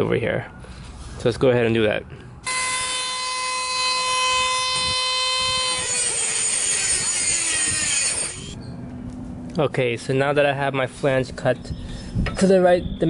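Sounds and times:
rotary tool whining: 2.4s - 8.6s
rotary tool grinding metal pipe: 2.5s - 8.6s.

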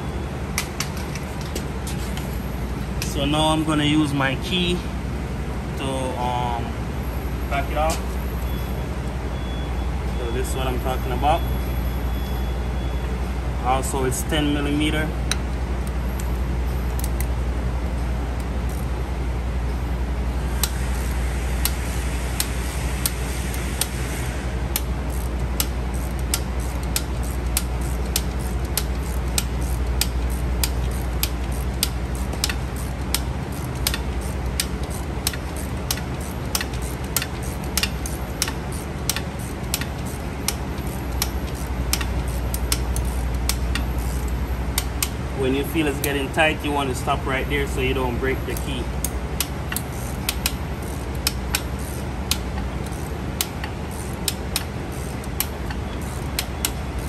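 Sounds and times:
steady low hum: 0.0s - 57.0s
brake adjuster clicking: 24.7s - 46.9s, 47.6s - 57.0s.

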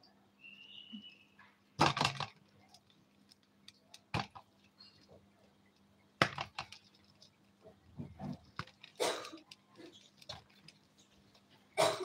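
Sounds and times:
plastic bag crinkling: 6.4s - 11.8s.

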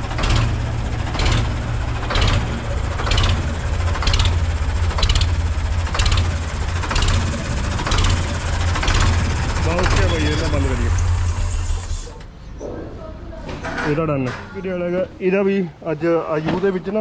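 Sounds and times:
tractor engine idling: 0.0s - 12.3s.

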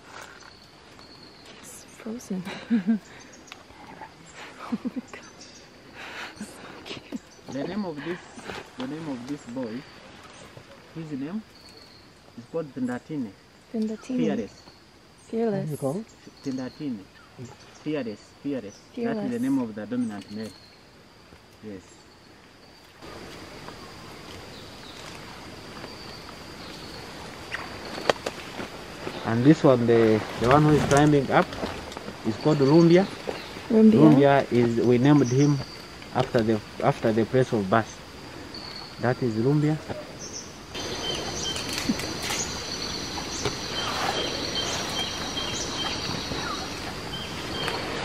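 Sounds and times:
pulsed insect call: 0.0s - 48.0s
high-pitched insect drone: 11.0s - 20.8s, 21.6s - 48.0s
bird chirps: 13.8s - 20.8s, 38.5s - 48.0s.

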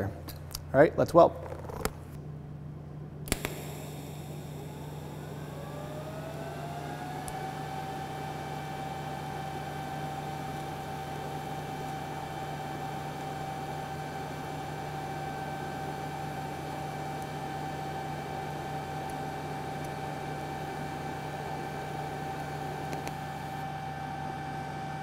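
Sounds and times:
arc starting click: 3.3s - 4.0s
rising whine: 3.4s - 13.0s.

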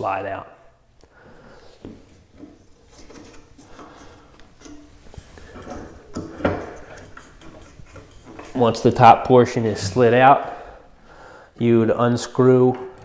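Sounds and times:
sander part knocking and scraping: 1.8s - 8.6s.

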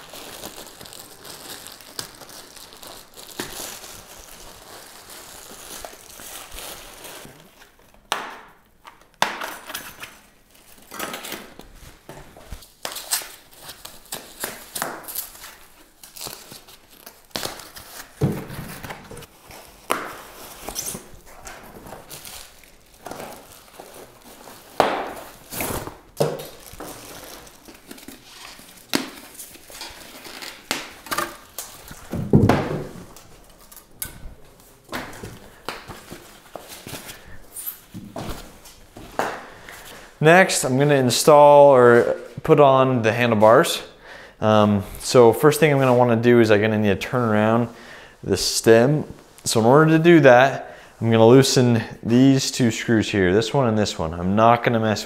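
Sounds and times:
foam and tape crinkling: 0.0s - 8.0s, 9.8s - 42.4s.

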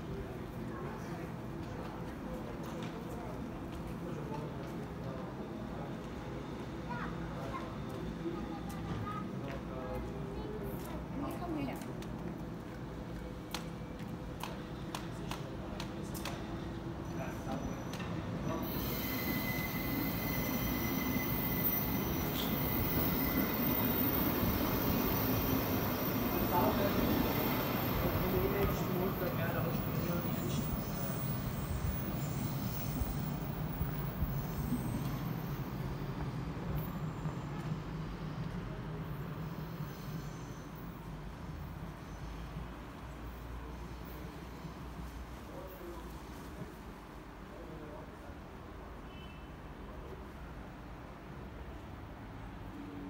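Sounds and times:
train coaches rumbling: 0.0s - 45.6s
high-pitched wheel squeal: 17.5s - 25.7s, 39.6s - 40.8s.

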